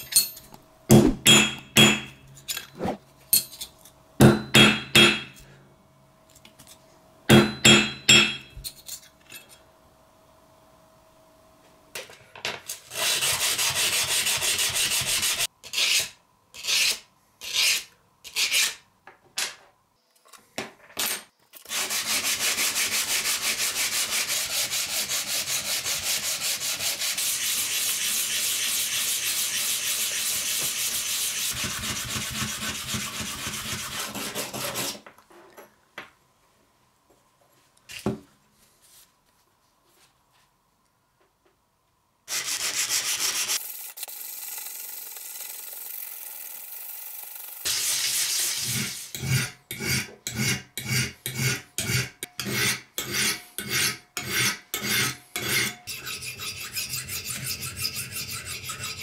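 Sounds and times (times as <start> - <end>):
hammer blows on steel anvil: 0.9 - 2.2
sandpaper block sanding metal: 12.9 - 16.0, 21.7 - 35.0, 42.3 - 43.6, 47.6 - 49.4, 52.5 - 59.0.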